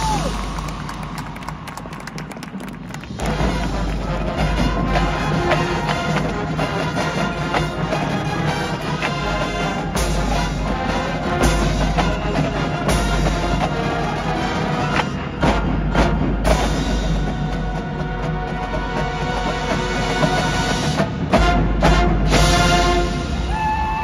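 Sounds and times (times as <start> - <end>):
marching band playing: 0.0 - 24.0.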